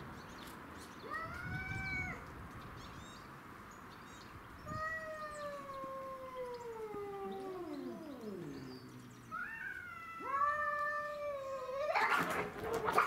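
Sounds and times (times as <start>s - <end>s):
cats yowling: 1.1s - 2.2s, 4.7s - 13.0s.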